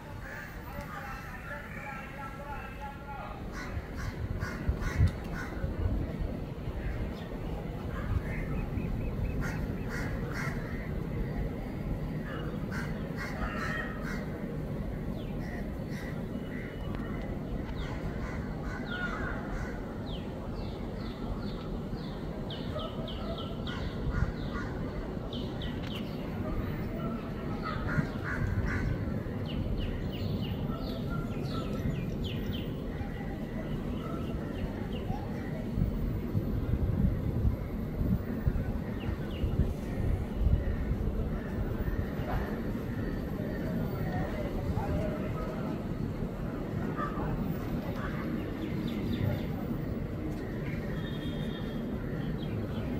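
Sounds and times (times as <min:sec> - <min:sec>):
birds making harsh calls: 0:03.4 - 0:05.8, 0:06.8 - 0:11.5, 0:12.1 - 0:20.8, 0:26.8 - 0:35.8.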